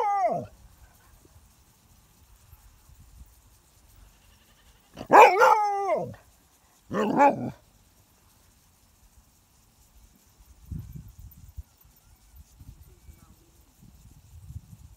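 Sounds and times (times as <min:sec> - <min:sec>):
dog barking: 0:05.0 - 0:06.1, 0:06.9 - 0:07.6.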